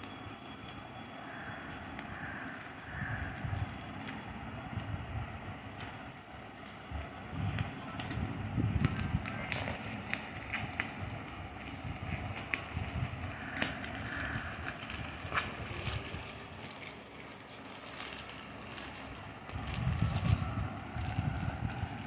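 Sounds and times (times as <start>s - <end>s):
packaging rustling and crinkling: 7.6s - 22.0s.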